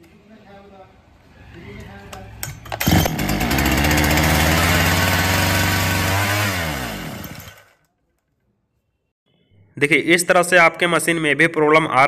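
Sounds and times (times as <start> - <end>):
chainsaw engine running: 2.8 - 7.8.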